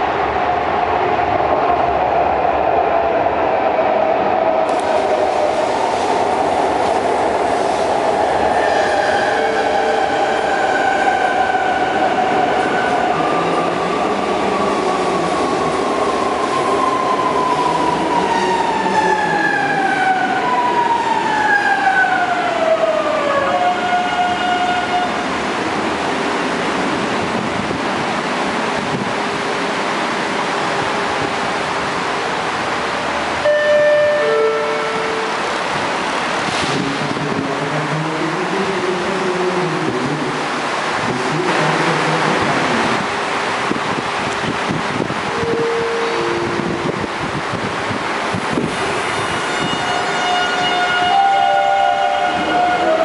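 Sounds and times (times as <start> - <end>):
train wheels rumbling on rails: 0.0 - 33.5, 34.1 - 53.0
steady train hum: 0.0 - 53.0
train braking: 48.8 - 53.0.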